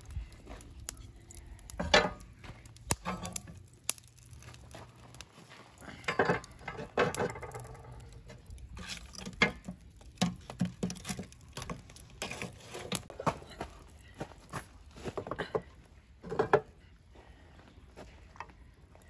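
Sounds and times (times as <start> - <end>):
metal poker stirring charcoal: 0.0 - 16.8
wooden sticks knocking on grill: 1.7 - 2.2, 9.2 - 13.4.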